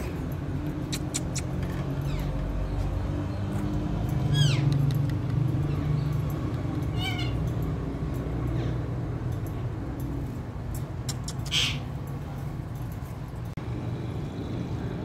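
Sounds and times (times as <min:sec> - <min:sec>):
parakeet calling: 0:04.3 - 0:04.7, 0:06.9 - 0:07.4, 0:11.3 - 0:11.9.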